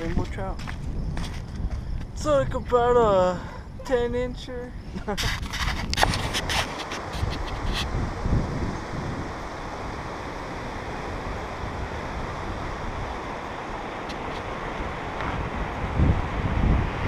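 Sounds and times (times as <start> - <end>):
wind buffeting microphone: 0.0 - 17.0
mountain stream rushing: 6.6 - 17.0.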